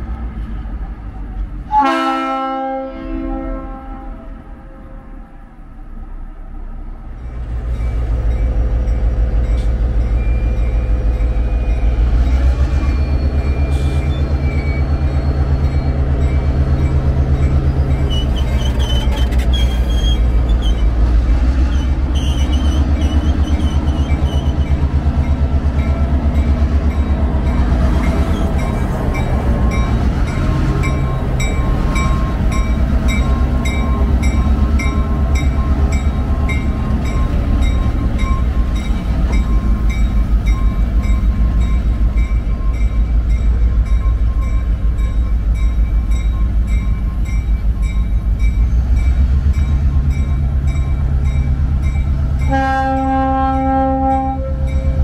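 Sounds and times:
diesel locomotive rumbling: 0:00.0 - 0:55.0
faint wavering squeal: 0:17.6 - 0:21.0.

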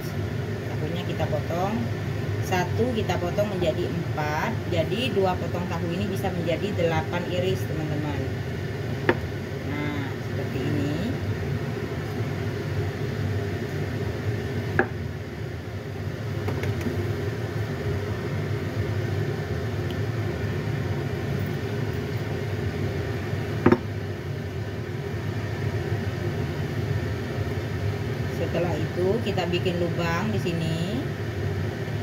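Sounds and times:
low background rumble: 0:00.0 - 0:32.0
cleaver knocking on chopping board: 0:23.6 - 0:23.8.

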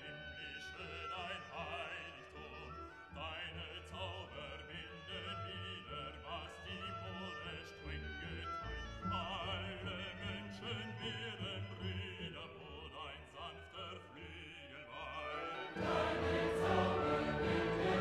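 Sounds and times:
music with wavering sung voices: 0:09.2 - 0:18.0.

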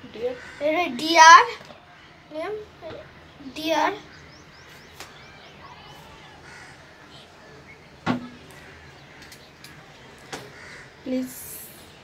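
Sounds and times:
crow cawing: 0:00.2 - 0:01.2, 0:05.4 - 0:07.6, 0:08.4 - 0:11.2.

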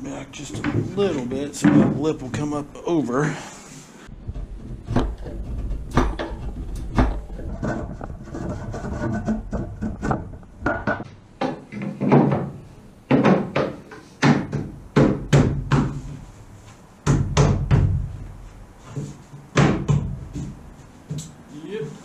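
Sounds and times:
wooden knocks: 0:04.2 - 0:16.0
hand tool rasping wood: 0:07.4 - 0:10.3.

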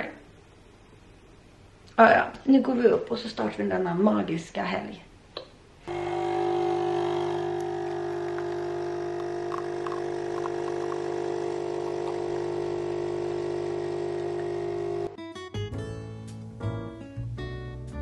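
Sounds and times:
coffee running into cup: 0:05.9 - 0:15.1
coffee machine pump buzzing: 0:05.9 - 0:15.2.

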